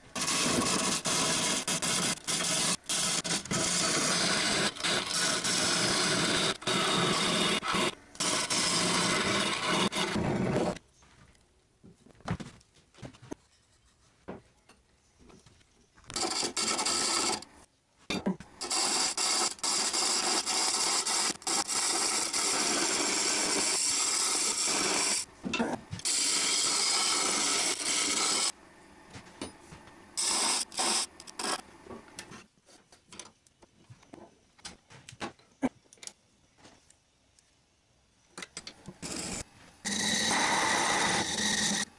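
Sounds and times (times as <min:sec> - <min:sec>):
lathe tool scraping wood: 0:00.2 - 0:10.8, 0:16.1 - 0:17.4, 0:39.0 - 0:41.9.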